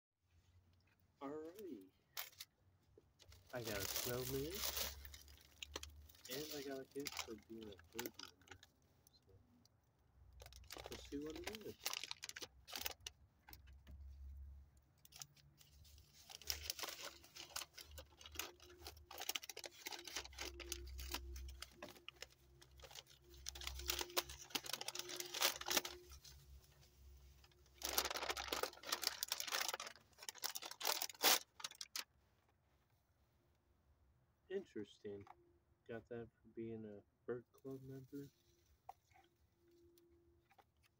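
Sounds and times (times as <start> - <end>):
paper wrapping tearing and rustling: 3.3 - 8.3, 10.4 - 13.1, 15.1 - 26.4, 27.4 - 32.0.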